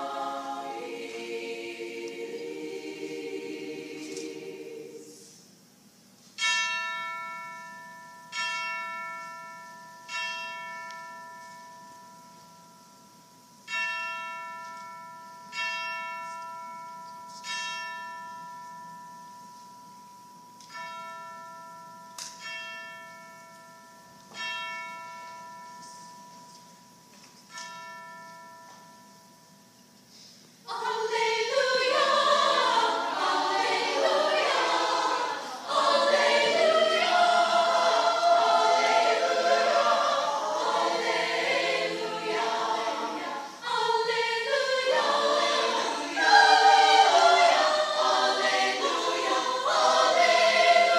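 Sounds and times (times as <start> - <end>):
choir singing loudly: 0.0 - 5.3, 30.7 - 50.9.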